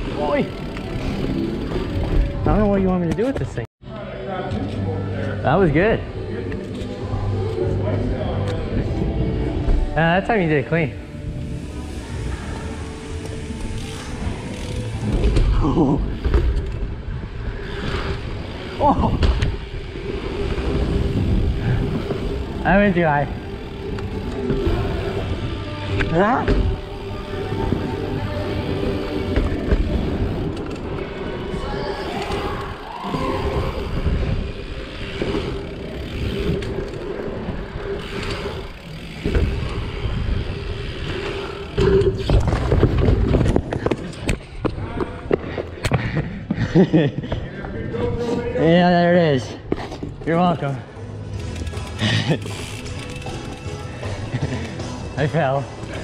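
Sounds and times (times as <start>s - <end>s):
bike rattling: 0.0s - 3.7s, 4.6s - 56.0s
bike tyres rumbling on ramp: 13.4s - 30.9s, 31.6s - 46.2s.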